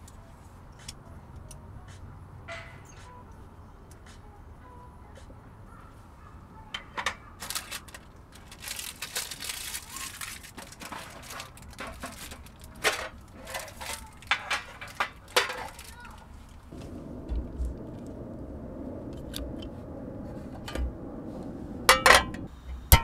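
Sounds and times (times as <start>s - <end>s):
rustling and crinkling: 6.9s - 22.4s
metal tray clicking and clinking: 10.5s - 15.9s.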